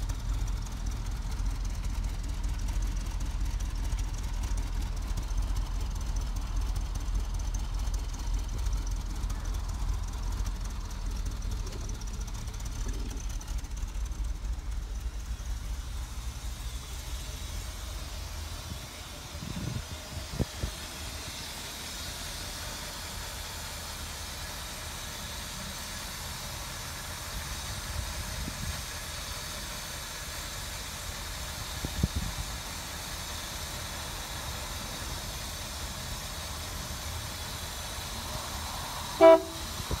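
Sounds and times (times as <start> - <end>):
low background rumble: 0.0 - 40.0
car horn toot: 39.2 - 39.8.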